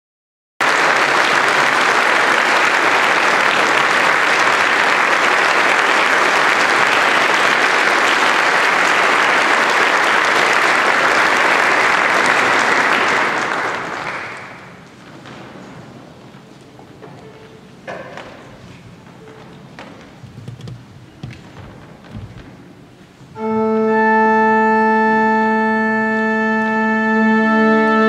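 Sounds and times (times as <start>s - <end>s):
audience applauding: 0.6s - 15.0s.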